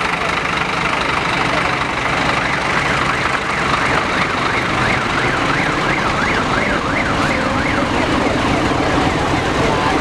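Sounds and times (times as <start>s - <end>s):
engine idling: 0.0s - 10.0s
siren wailing: 2.3s - 8.4s.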